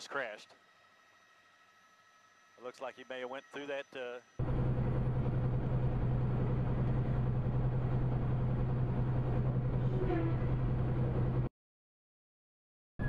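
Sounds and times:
truck engine drone: 0:04.2 - 0:11.5
road and tyre noise: 0:04.4 - 0:11.5.

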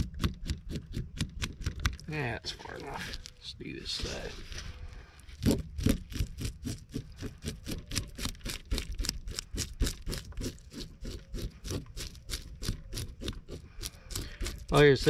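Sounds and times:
spoon scraping fish scales: 0:06.1 - 0:15.0.

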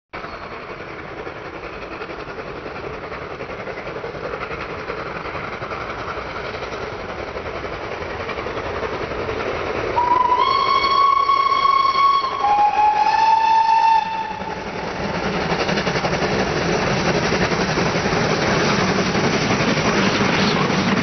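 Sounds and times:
steam locomotive exhaust beat: 0:00.2 - 0:21.0
steam whistle: 0:10.0 - 0:14.6.

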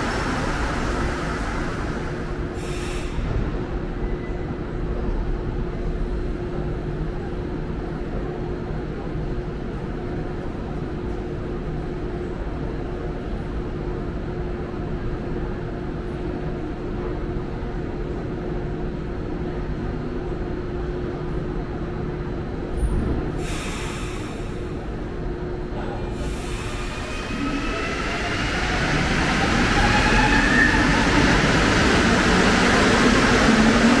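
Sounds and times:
metro train rumbling: 0:00.0 - 0:34.0.

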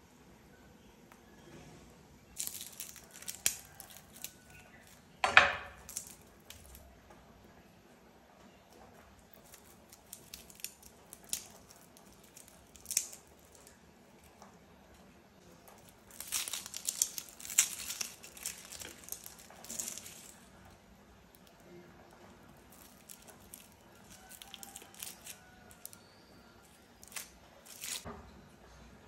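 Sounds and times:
faint crackles: 0:02.3 - 0:05.2, 0:08.4 - 0:28.1
onion skin crinkling and tearing: 0:02.3 - 0:06.9, 0:08.7 - 0:14.4, 0:15.4 - 0:20.6, 0:21.2 - 0:28.1
fingers peeling garlic skins: 0:02.3 - 0:07.0, 0:08.7 - 0:28.0.

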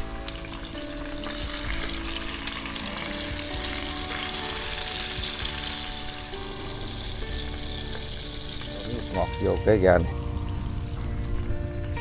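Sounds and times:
fish frying in hot oil: 0:00.0 - 0:12.0.

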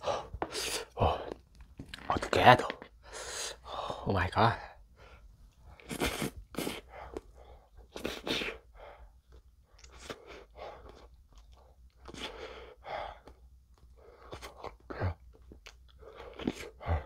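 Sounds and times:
sharp sniffs and breaths: 0:05.0 - 0:09.1
man eating ice cream: 0:09.3 - 0:12.5, 0:14.1 - 0:17.0.

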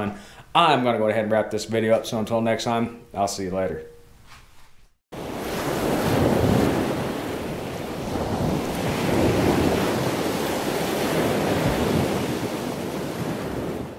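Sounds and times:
ocean surf rushing: 0:05.2 - 0:13.9.

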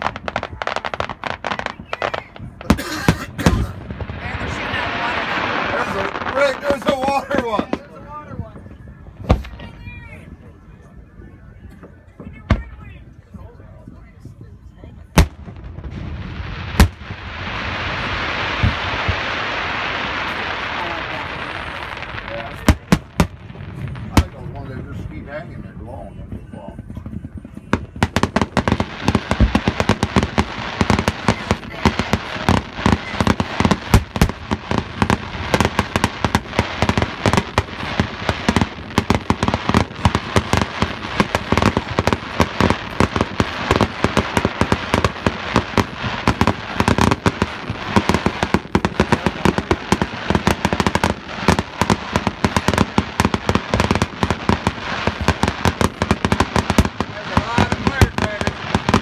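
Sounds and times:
fireworks banging and popping: 0:00.0 - 0:09.8, 0:15.1 - 0:59.0.

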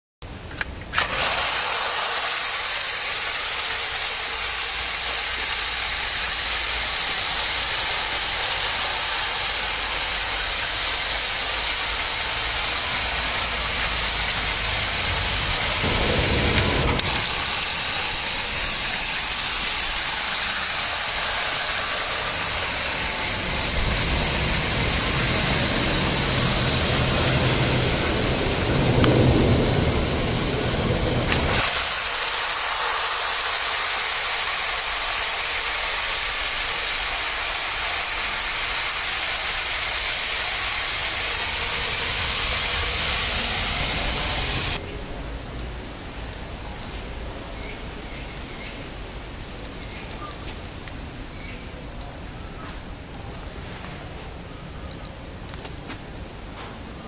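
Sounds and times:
clockwork toy train whirring on track: 0:00.5 - 0:44.8
hand knocking toy locomotive: 0:00.9 - 0:29.5, 0:31.2 - 0:44.8.

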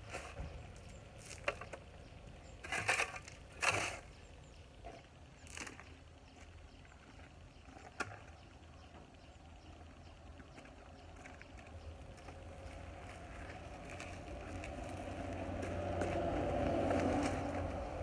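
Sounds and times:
vehicle engine passing: 0:11.9 - 0:18.0.

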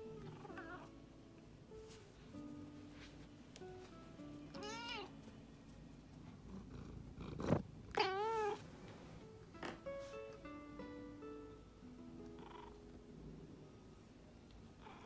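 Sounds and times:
cat meowing: 0:04.5 - 0:05.1, 0:07.9 - 0:08.6.

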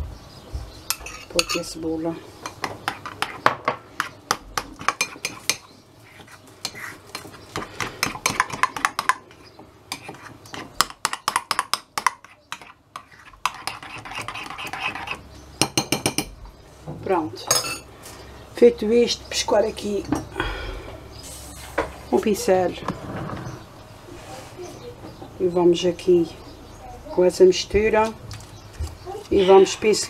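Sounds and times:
spoon scraping bowl: 0:02.4 - 0:04.2, 0:04.8 - 0:10.6, 0:12.0 - 0:15.2.

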